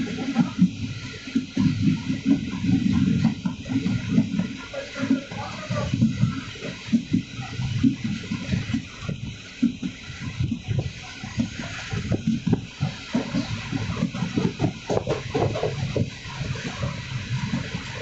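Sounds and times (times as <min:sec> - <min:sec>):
train rushing noise: 0:00.0 - 0:18.0
coach knocking and rattling: 0:14.3 - 0:16.1.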